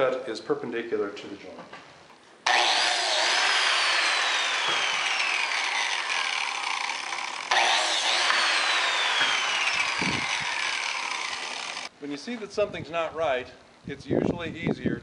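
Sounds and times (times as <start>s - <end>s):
biscuit joiner motor whine: 2.5s - 11.9s.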